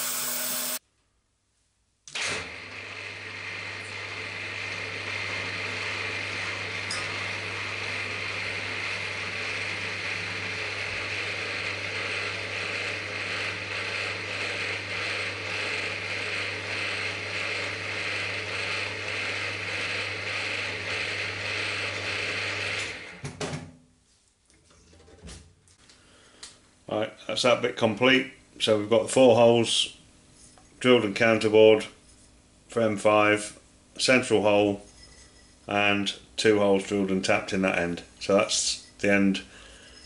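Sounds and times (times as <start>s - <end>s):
drilling into metal plate: 0.0s - 0.8s, 2.1s - 23.1s
mill drill running with gear whine: 0.0s - 0.8s, 2.2s - 23.3s.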